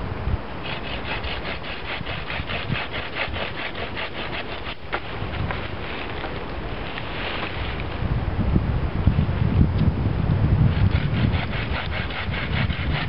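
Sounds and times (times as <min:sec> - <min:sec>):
saw cutting wood: 0:00.6 - 0:06.2, 0:10.7 - 0:13.0.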